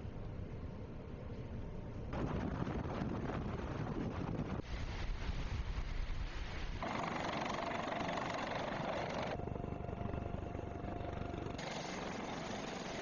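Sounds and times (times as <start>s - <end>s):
wind: 0.0s - 13.0s
sea noise: 2.1s - 9.4s
helicopter engine whine: 6.8s - 13.0s.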